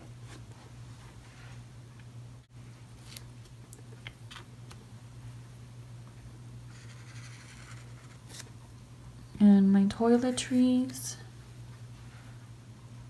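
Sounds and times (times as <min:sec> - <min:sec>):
steady low hum: 0:00.0 - 0:13.0
marker scratching on paper: 0:06.7 - 0:08.4.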